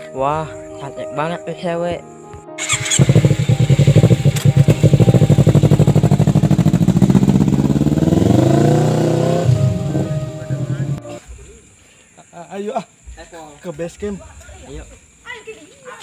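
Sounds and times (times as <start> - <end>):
motorcycle engine accelerating: 2.6 - 11.2.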